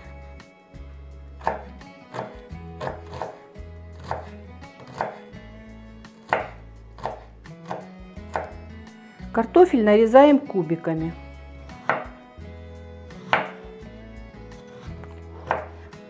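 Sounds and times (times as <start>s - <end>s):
knife knocking on cutting board: 1.4s - 3.4s, 11.8s - 12.2s, 13.3s - 13.6s, 15.4s - 15.7s.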